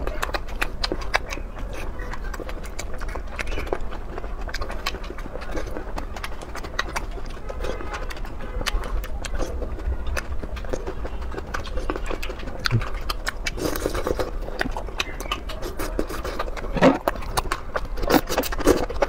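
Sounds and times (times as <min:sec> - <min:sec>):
wet chewing mouth smacks: 0:00.0 - 0:19.0.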